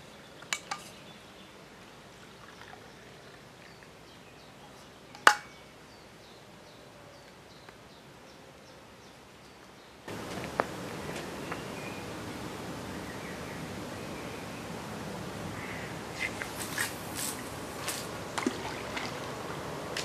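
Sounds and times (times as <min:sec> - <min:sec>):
steady hiss: 0:09.2 - 0:20.0.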